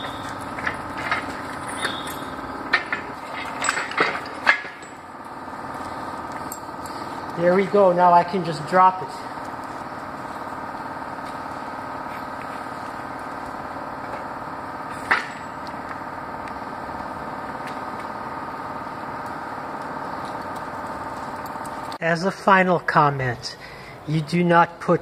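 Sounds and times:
steady mechanical hum: 0.0 - 25.0.

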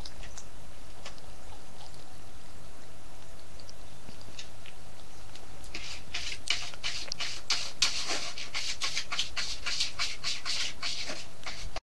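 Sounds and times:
kittens sucking on finger: 3.3 - 8.0.

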